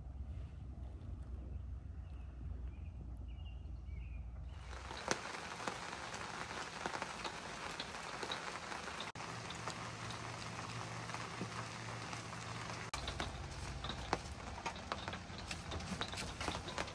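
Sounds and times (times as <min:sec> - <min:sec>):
steady rain falling: 0:04.6 - 0:16.9.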